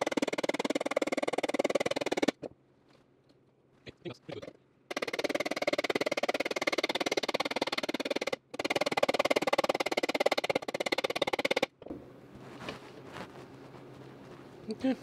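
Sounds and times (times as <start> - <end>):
small hammer tapping metal: 4.9 - 11.7.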